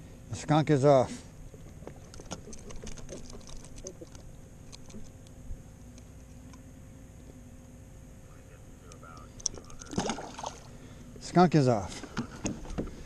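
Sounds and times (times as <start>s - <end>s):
clicks of fish being unhooked: 1.8s - 6.6s, 8.9s - 10.2s.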